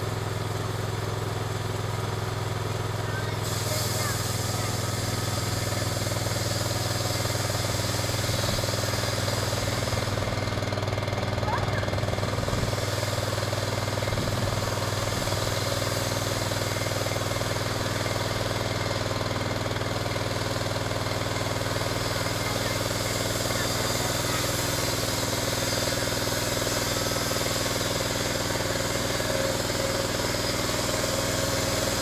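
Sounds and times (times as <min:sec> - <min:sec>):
sawmill gas engine running: 0:00.0 - 0:32.0.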